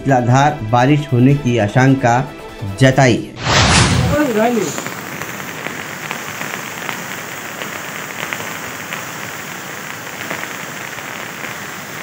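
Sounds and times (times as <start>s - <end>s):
heavy rain hiss: 3.4s - 12.0s.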